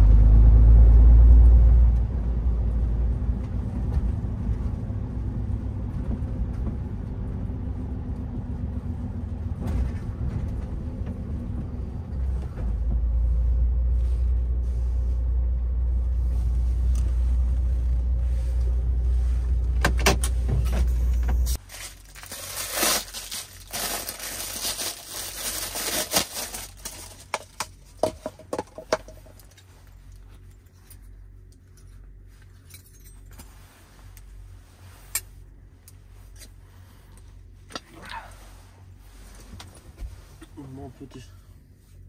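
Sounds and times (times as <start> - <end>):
diesel truck engine running: 0.0 - 21.6
faint background hum: 1.9 - 42.0
clicks and jingling rattles: 28.2 - 33.5.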